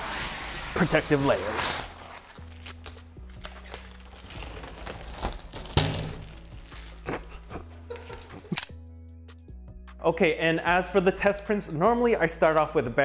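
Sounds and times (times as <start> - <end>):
plastic film crackling as peeled: 0.0 - 8.6
plastic film ripping: 0.0 - 8.7
background music with low notes: 0.0 - 13.0.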